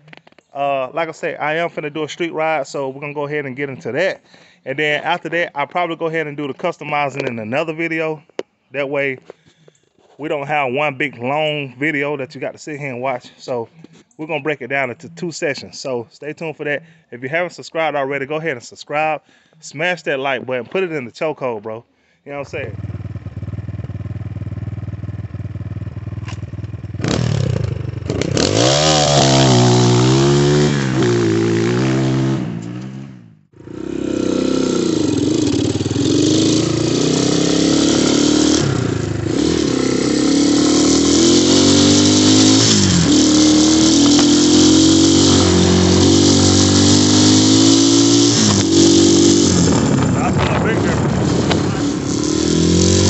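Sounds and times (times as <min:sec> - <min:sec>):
dirt bike engine revving: 0:22.5 - 0:53.0.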